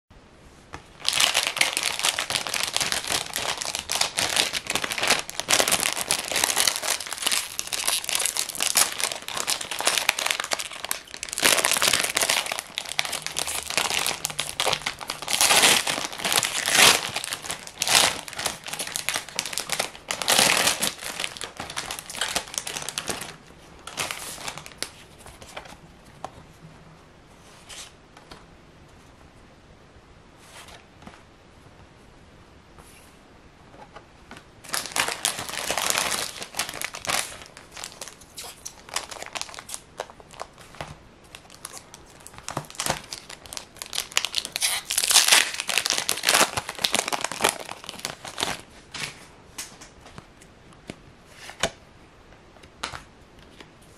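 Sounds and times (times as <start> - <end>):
plastic wrapper crinkling and tearing: 1.0 - 25.0, 34.6 - 48.7.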